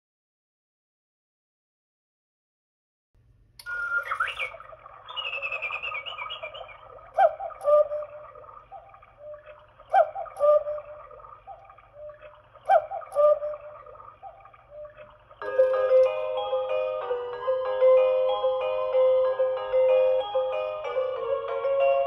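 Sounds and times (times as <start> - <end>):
recorded birdsong chirps: 3.6 - 16.3
recorded cuckoo call: 3.6 - 17.2.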